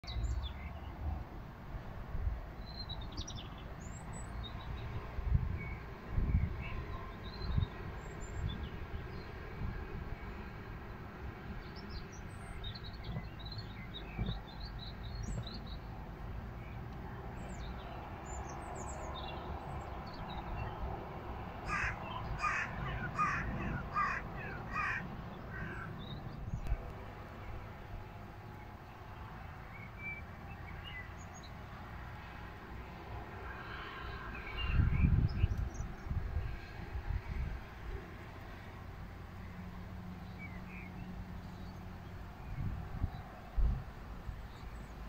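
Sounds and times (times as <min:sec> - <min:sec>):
wind rumbling on microphone: 0:00.1 - 0:27.8, 0:34.1 - 0:38.6, 0:41.5 - 0:45.0
birds chirping and calling: 0:21.6 - 0:26.8.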